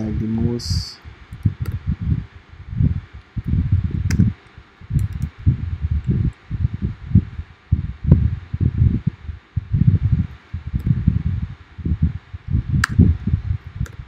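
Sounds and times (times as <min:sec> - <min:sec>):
wind buffeting microphone: 0:00.0 - 0:14.0
sharp clicks: 0:01.3 - 0:01.8, 0:05.0 - 0:05.4, 0:12.8 - 0:13.1.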